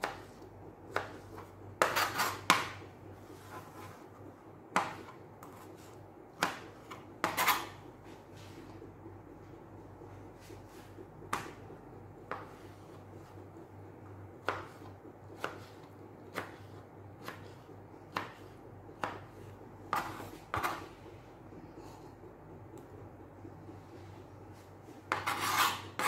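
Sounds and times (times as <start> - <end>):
knife chopping on plastic board: 0.0 - 2.8, 4.7 - 5.7, 6.3 - 7.8, 11.3 - 11.6, 12.2 - 12.8, 14.4 - 20.9, 25.1 - 26.0.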